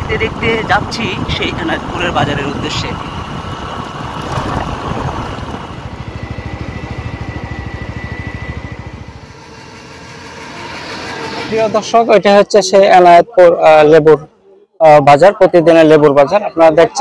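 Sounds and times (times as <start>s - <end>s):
small vehicle engine running: 0.0s - 12.1s.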